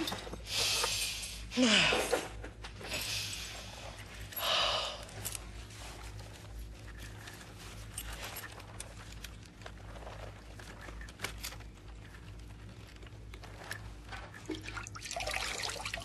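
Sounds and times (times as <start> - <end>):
clicks and rustling of straps: 2.1 - 14.8.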